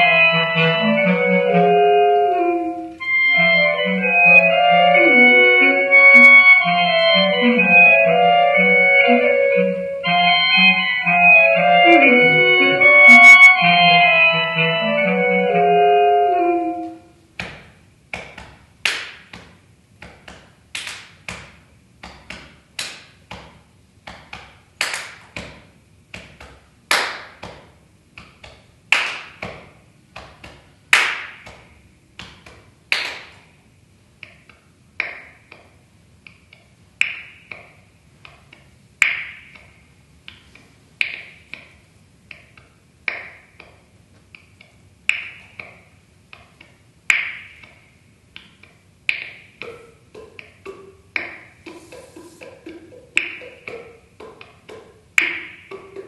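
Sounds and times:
finger snaps with reverb: 34.2s - 41.7s, 42.3s - 56.0s.

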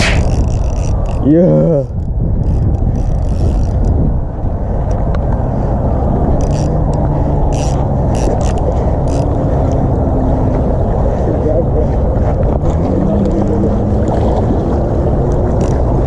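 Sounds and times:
fishing reel clicks: 0.0s - 4.0s, 6.4s - 9.8s, 15.6s - 15.8s
wind rumbling on microphone: 0.0s - 16.0s.

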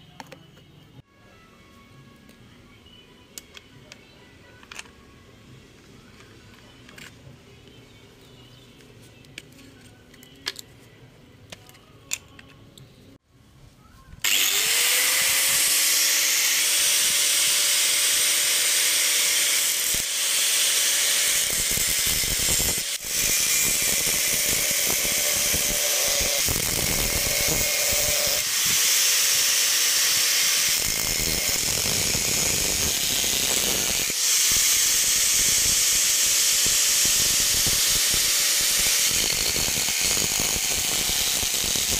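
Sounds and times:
angle grinder whining: 14.2s - 41.9s
grinder cutting coconut husk: 14.2s - 41.9s.

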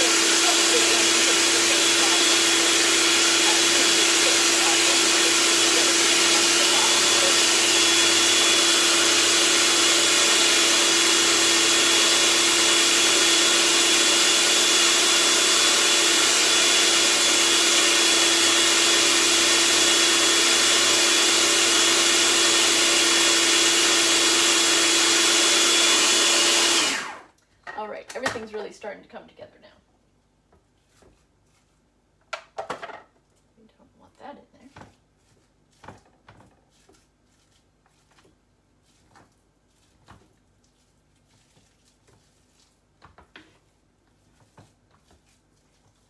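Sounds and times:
food processor running: 0.0s - 27.3s.

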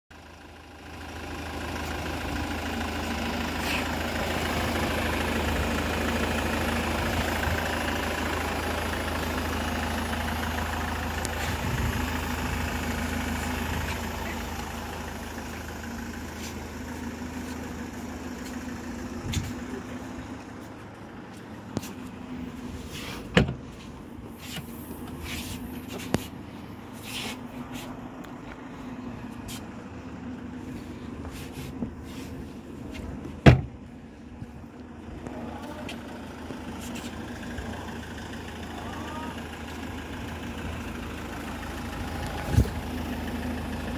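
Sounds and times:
diesel engine idling: 0.1s - 43.9s.

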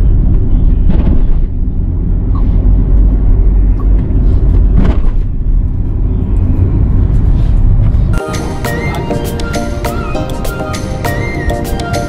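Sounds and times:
car road rumble: 0.0s - 8.2s.

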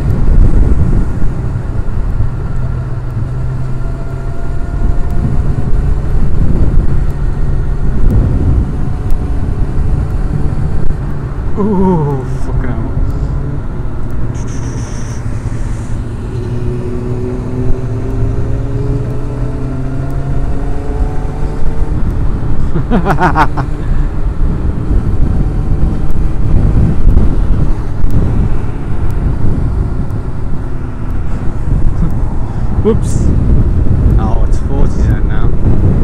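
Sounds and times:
motorcycle engine accelerating: 0.0s - 36.0s
road noise: 0.0s - 36.0s
wind rumble on microphone: 0.0s - 36.0s.

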